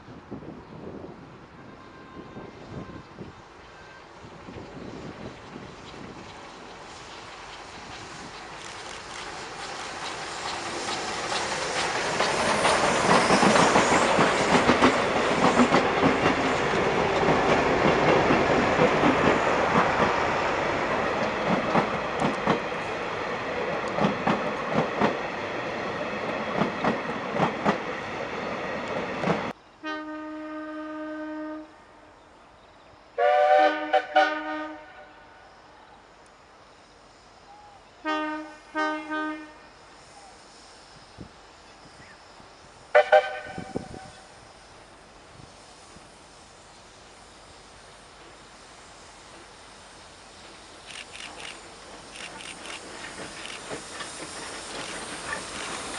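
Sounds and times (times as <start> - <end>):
steam locomotive passing: 0.0 - 55.9
train wheels clicking on rail joints: 4.4 - 29.6, 48.2 - 55.9
steam whistle blasts: 29.8 - 31.8, 33.2 - 35.4, 38.0 - 39.7, 42.9 - 44.3.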